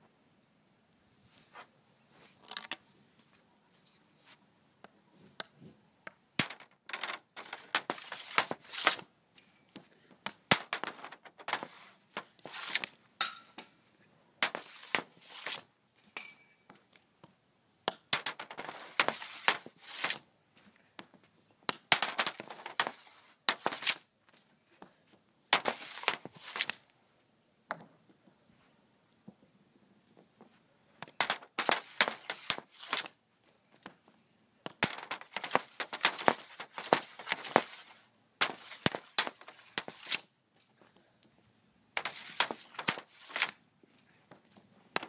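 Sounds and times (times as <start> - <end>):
balls struck with sharp cracks: 5.4 - 9.1, 9.7 - 13.8, 14.4 - 20.2, 21.0 - 24.0, 25.5 - 26.8, 31.0 - 33.2, 34.6 - 40.3, 42.0 - 43.6
hockey stick scraping and slapping: 6.4 - 9.1, 9.8 - 13.0, 14.4 - 15.7, 17.9 - 20.2, 21.7 - 24.0, 25.6 - 26.8, 31.0 - 33.2, 34.7 - 40.2, 42.0 - 43.6.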